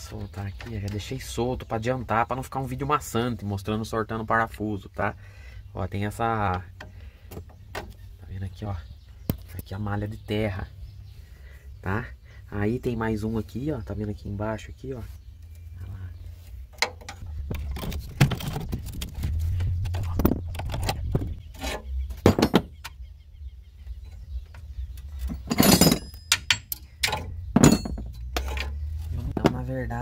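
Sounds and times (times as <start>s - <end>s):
metallic clinks of tools and bolts: 25.2s - 28.8s.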